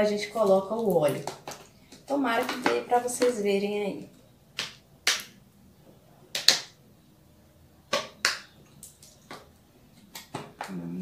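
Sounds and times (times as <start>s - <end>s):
plastic bottles clicking and knocking: 0.4s - 3.4s, 6.3s - 6.8s, 7.9s - 10.9s.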